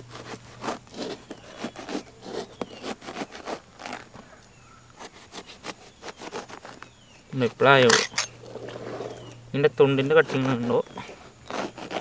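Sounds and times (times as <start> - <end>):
knife sawing through fruit rind: 0.0 - 4.1, 5.0 - 6.8, 8.4 - 12.0.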